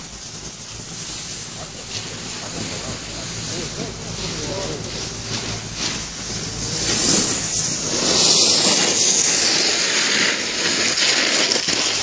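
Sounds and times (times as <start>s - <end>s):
snowboard scraping snow: 0.0s - 12.0s.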